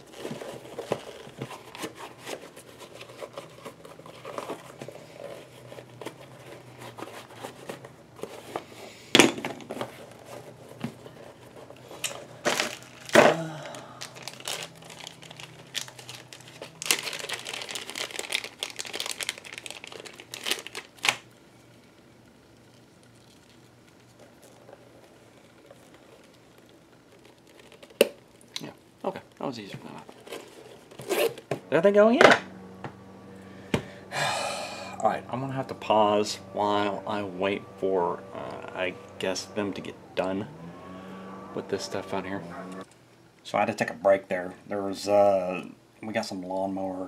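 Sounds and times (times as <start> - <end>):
bags rustling and crinkling: 0.0 - 8.8, 9.6 - 21.3.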